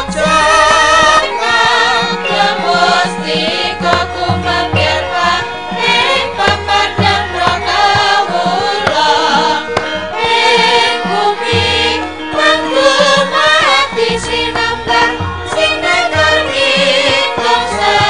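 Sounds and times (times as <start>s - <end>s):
voices singing: 0.0s - 18.0s.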